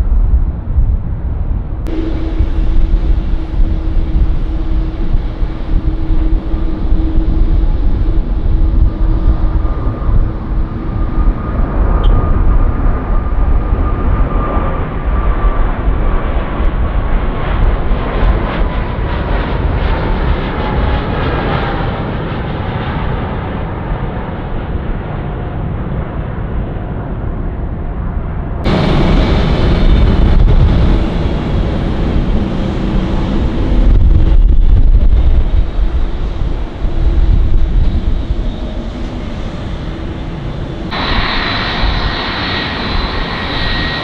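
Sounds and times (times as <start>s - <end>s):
jet rumble with low hum: 0.0s - 44.0s
jet engines roaring with whine: 0.1s - 44.0s.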